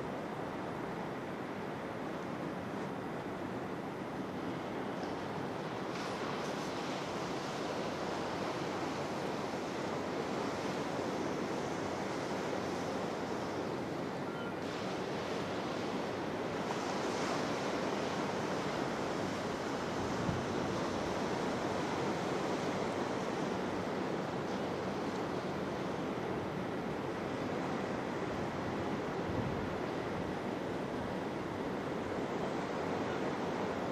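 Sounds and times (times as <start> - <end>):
sea waves washing on shore: 0.0 - 33.9
wind noise on microphone: 16.7 - 22.8, 28.5 - 32.6.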